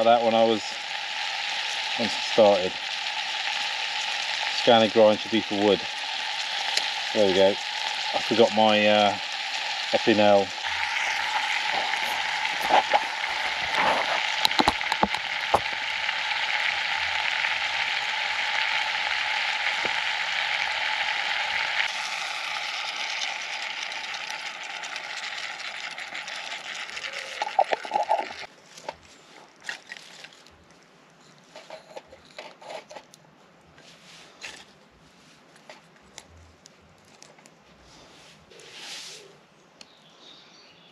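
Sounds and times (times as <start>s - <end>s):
potatoes sizzling in oil: 0.0s - 28.5s.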